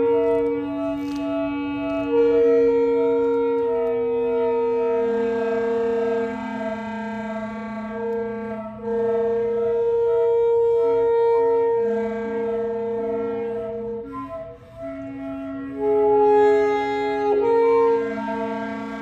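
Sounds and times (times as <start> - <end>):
wind instruments holding long notes: 0.0 - 19.0.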